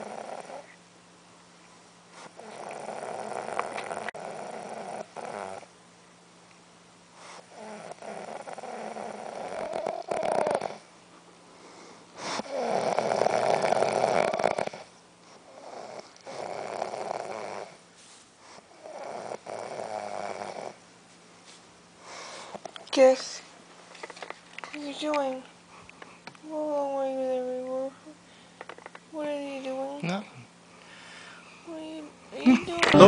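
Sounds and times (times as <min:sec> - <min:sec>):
woman snoring: 0:00.0 - 0:00.6, 0:02.4 - 0:05.7, 0:07.5 - 0:10.8, 0:12.4 - 0:14.9, 0:15.5 - 0:17.8, 0:18.8 - 0:20.8.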